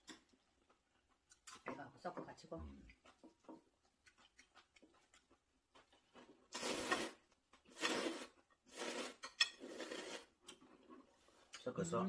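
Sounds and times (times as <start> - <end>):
noodles being slurped: 6.0 - 11.3.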